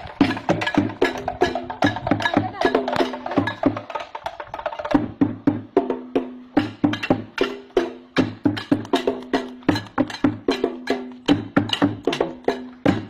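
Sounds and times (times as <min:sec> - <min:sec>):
sticks beating drums: 0:00.0 - 0:13.0.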